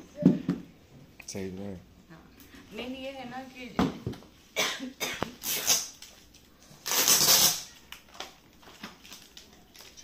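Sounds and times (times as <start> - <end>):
wrapping paper rustling: 5.4 - 10.0.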